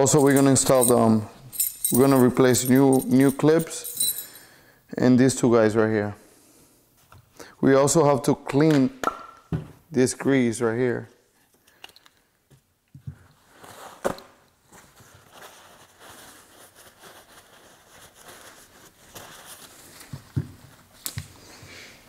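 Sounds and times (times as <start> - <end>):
paper towel rubbing and rustling: 14.7 - 21.0.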